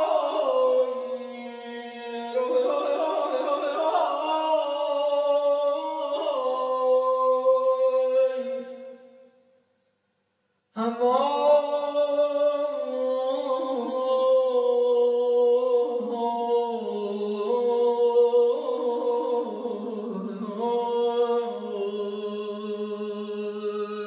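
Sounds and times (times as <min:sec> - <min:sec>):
lower vocal line: 0:00.0 - 0:09.0, 0:10.8 - 0:24.0
person singing long held notes: 0:00.0 - 0:09.0.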